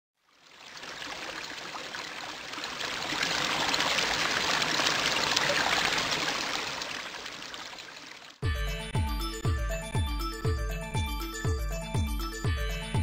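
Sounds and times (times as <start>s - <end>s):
water pouring and trickling: 0.2s - 8.4s.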